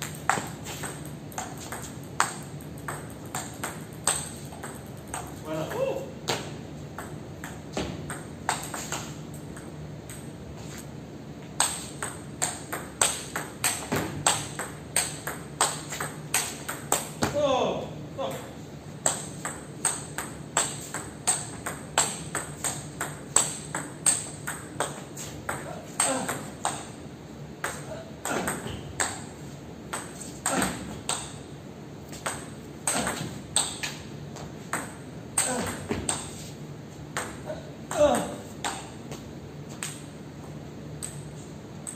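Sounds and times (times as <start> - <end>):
ball bouncing on table: 0.0 - 5.4, 29.9 - 31.4, 32.1 - 36.3
table tennis ball hits: 0.0 - 10.3, 11.6 - 17.4, 18.3 - 27.0, 27.6 - 31.4, 32.1 - 36.4, 37.1 - 39.0.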